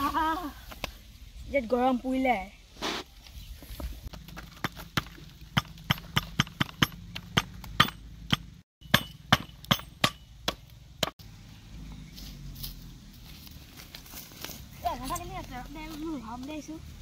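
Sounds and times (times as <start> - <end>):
firewood knocking on stones: 4.1 - 11.1.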